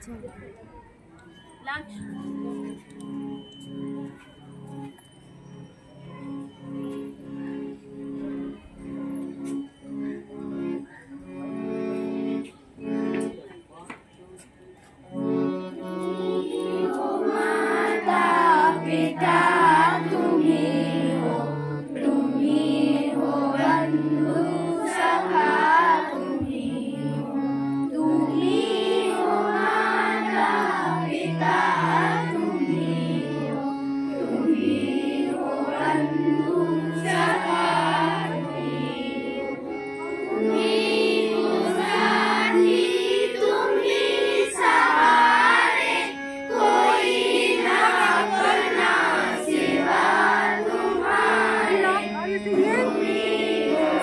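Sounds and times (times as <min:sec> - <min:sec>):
held low accompanying notes: 0:00.0 - 0:54.0
person singing prayer song: 0:16.1 - 0:39.5, 0:40.3 - 0:54.0.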